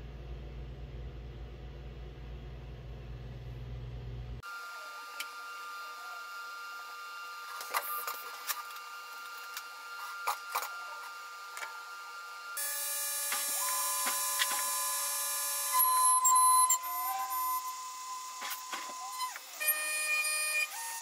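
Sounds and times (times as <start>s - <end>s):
milling machine humming: 1.8s - 21.0s
mill cutting metal: 4.5s - 21.0s.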